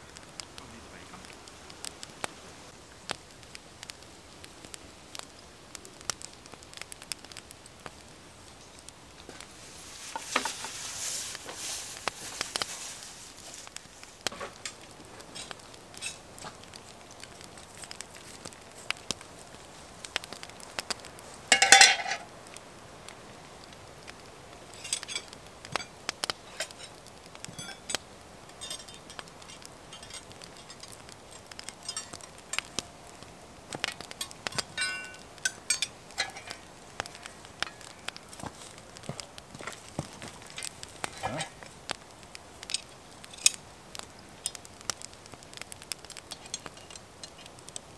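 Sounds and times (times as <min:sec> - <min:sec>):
campfire crackling: 0:00.0 - 0:47.9
cooking gear clinking: 0:21.5 - 0:22.2, 0:24.8 - 0:32.7, 0:33.8 - 0:36.6.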